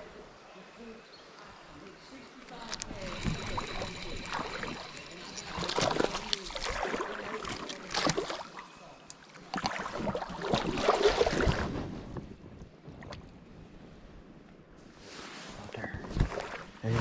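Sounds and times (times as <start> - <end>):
water splashing around legs: 2.5 - 11.8.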